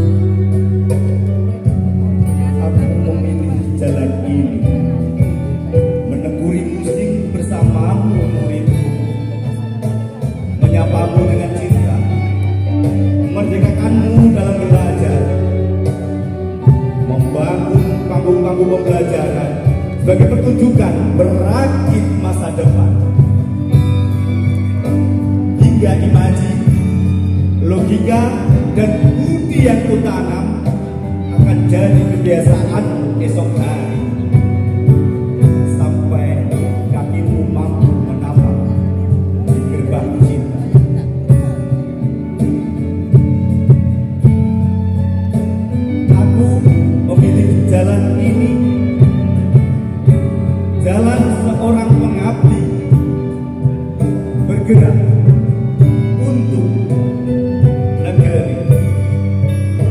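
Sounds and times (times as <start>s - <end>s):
bass line: 0.0s - 59.9s
live band music: 0.0s - 59.9s.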